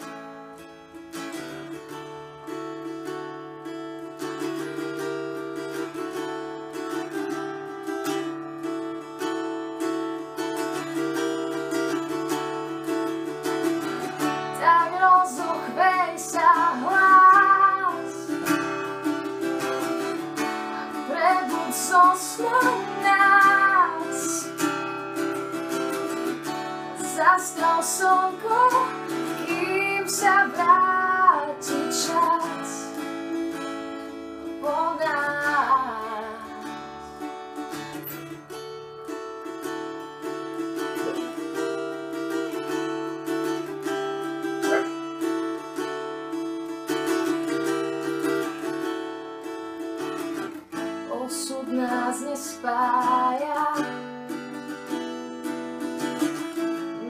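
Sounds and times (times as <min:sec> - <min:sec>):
acoustic guitar chords: 0:00.0 - 0:57.0
woman singing: 0:13.7 - 0:33.7, 0:34.4 - 0:37.2, 0:50.2 - 0:54.5.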